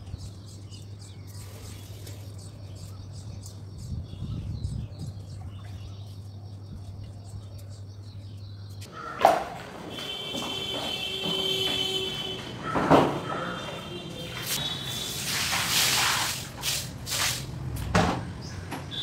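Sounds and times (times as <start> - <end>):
small birds chirping: 0.0 - 9.2.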